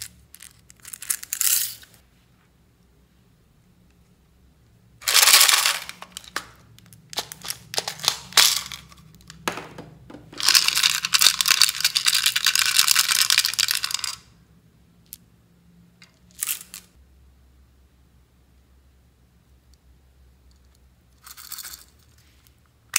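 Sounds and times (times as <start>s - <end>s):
beads rattling in plastic container: 5.0s - 6.5s, 7.2s - 9.0s, 10.4s - 14.2s.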